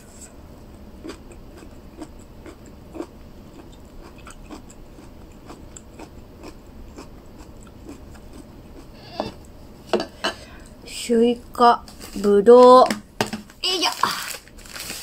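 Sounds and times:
person chewing food: 0.0 - 10.6.

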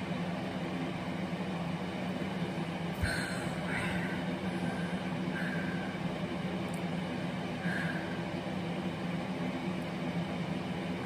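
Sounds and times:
room tone hum and hiss: 0.0 - 11.0.

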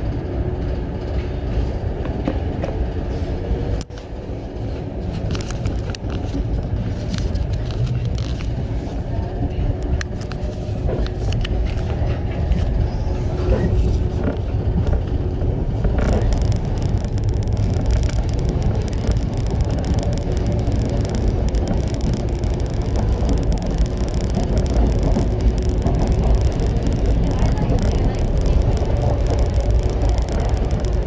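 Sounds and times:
train wheels rumbling: 0.0 - 31.0
track noise hiss: 3.3 - 31.0
sharp clicks: 15.8 - 31.0.

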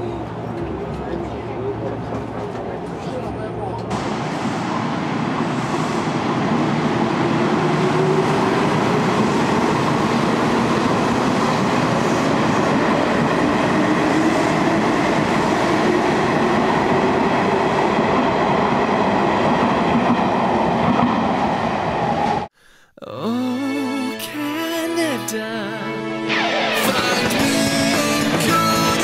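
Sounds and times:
train wheels rumbling on rails: 0.0 - 22.5.

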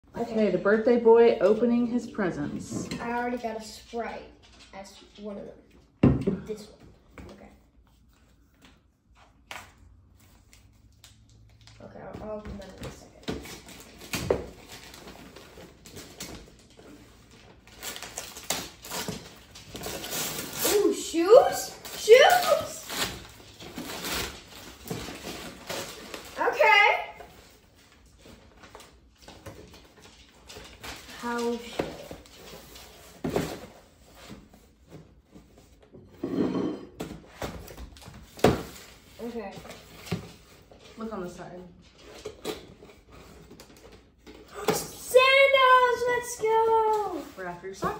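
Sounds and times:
wrapping paper tearing and crinkling: 13.4 - 33.5.

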